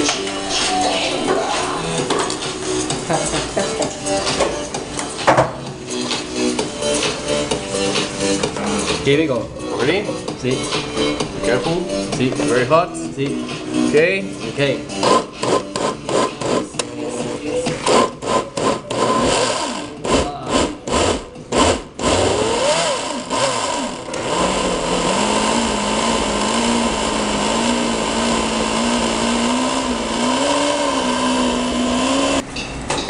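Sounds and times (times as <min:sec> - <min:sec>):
blender motor pulsing and running: 0:17.9 - 0:32.4.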